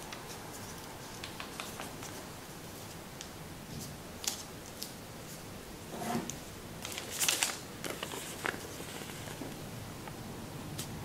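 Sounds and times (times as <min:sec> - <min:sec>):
paper crinkling and rustling: 0:06.8 - 0:09.6.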